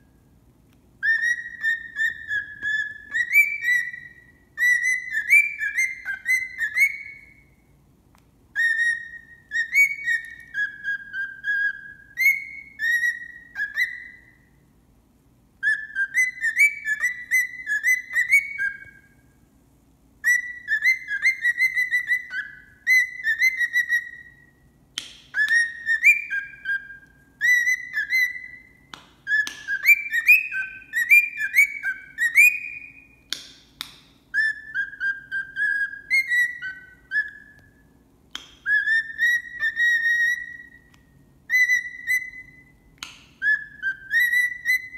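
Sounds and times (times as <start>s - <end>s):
cockatiel whistling: 1.0s - 7.7s, 8.5s - 14.6s, 15.6s - 19.3s, 20.2s - 44.9s.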